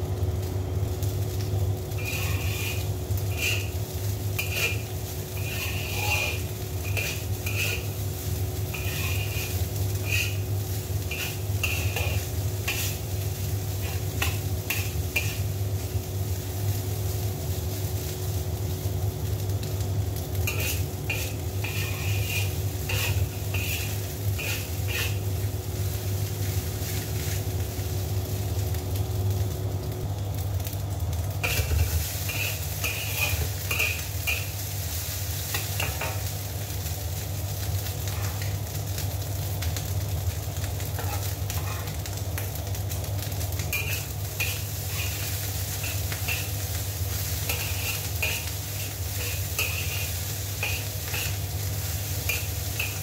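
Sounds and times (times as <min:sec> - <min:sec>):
rice sizzling in a wok: 0:00.0 - 0:53.0
steady low hum: 0:00.0 - 0:53.0
metal spatula scraping a wok: 0:01.9 - 0:15.6, 0:20.4 - 0:25.5, 0:31.4 - 0:36.3, 0:38.0 - 0:38.5, 0:40.8 - 0:42.0, 0:43.7 - 0:53.0.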